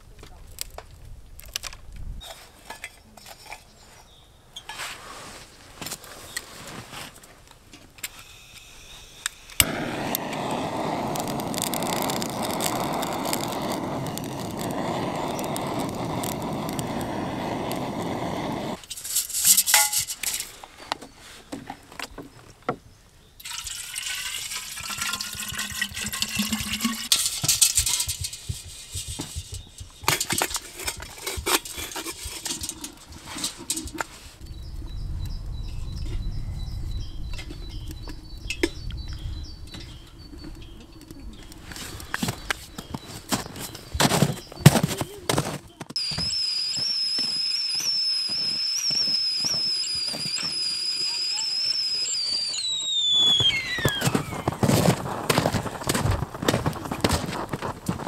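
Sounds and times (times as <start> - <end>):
water pouring into vessel: 23.4 - 27.1.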